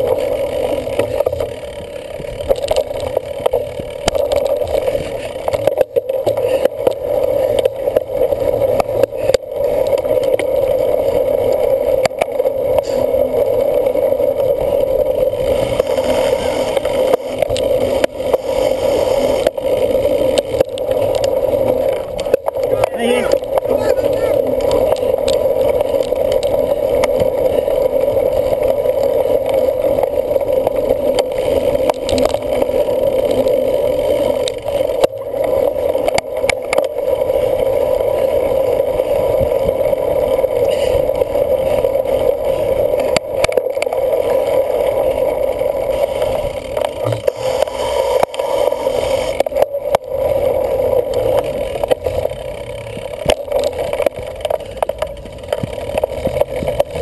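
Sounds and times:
bicycle tyres rolling: 0.0s - 57.0s
bike knocks and rattles: 46.9s - 47.5s.

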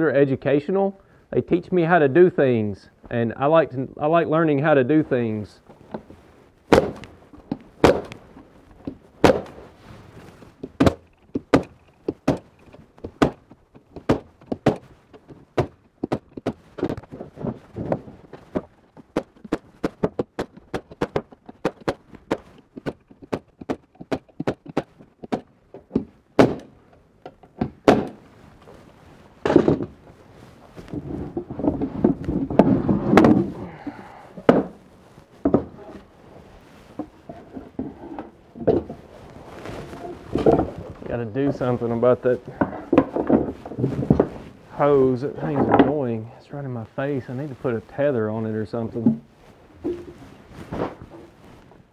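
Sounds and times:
handling knocks: 6.7s - 8.2s, 8.8s - 28.3s, 29.4s - 30.0s, 30.8s - 36.0s.

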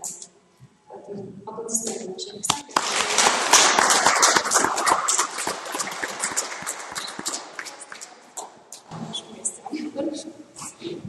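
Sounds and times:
audience applauding: 2.7s - 8.2s.

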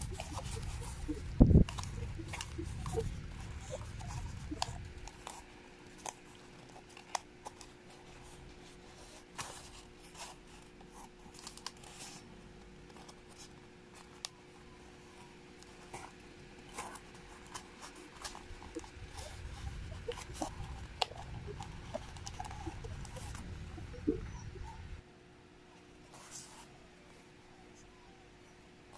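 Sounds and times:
cardboard rustling and crackling: 0.0s - 15.0s.

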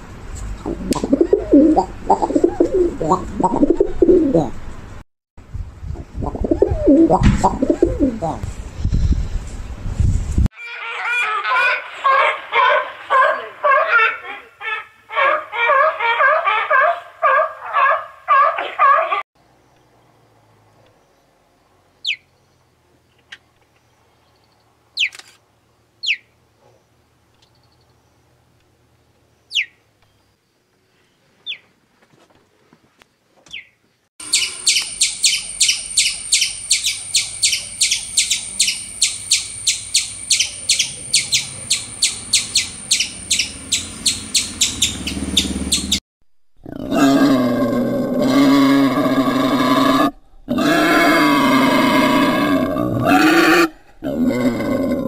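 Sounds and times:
deep animal call: 0.6s - 4.6s, 46.6s - 55.0s
bird chirps: 26.0s - 26.3s, 33.5s - 46.0s
squirrel chattering calls: 34.2s - 46.0s.

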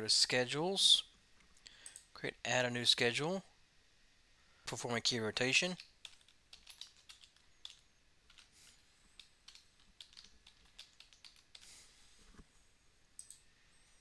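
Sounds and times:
faint keyboard typing: 5.6s - 11.8s, 13.1s - 13.5s.

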